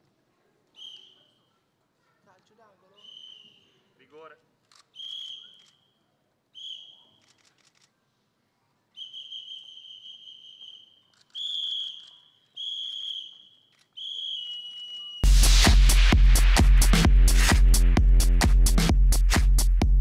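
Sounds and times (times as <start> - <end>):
high held whistle tones: 0.8 - 1.4, 3.0 - 3.8, 4.9 - 5.8, 6.5 - 7.1, 8.9 - 15.3.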